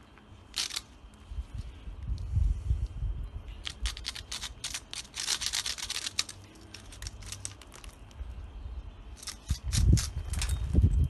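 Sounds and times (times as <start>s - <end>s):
low steady rumble: 0.0s - 11.0s
sharp clicks and crackles: 3.6s - 8.2s.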